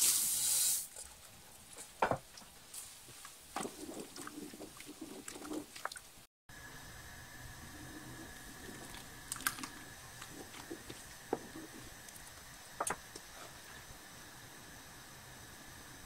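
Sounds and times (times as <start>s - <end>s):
faint steady hiss: 0.0s - 16.0s
spoon stirring grain and water: 0.9s - 6.2s, 7.8s - 13.8s.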